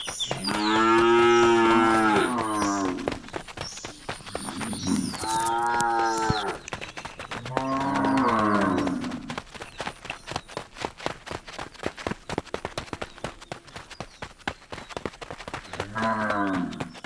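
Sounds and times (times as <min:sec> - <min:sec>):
cows chewing grass: 0:00.0 - 0:13.8
cattle mooing: 0:00.5 - 0:02.7.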